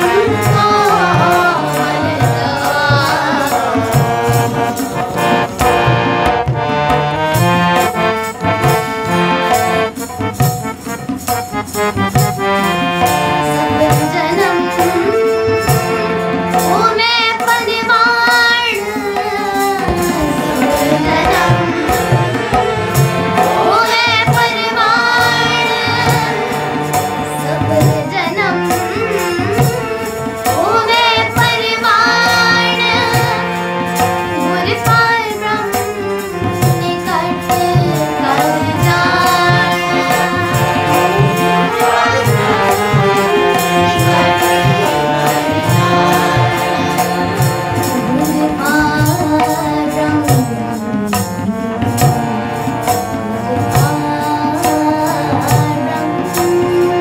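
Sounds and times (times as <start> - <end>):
girl singing: 0.0 - 5.0, 13.5 - 22.4, 23.0 - 50.6, 53.4 - 57.0
young voices singing chorus: 0.0 - 6.4, 13.3 - 50.3
harmonium: 0.0 - 57.0
tabla beat: 0.0 - 57.0.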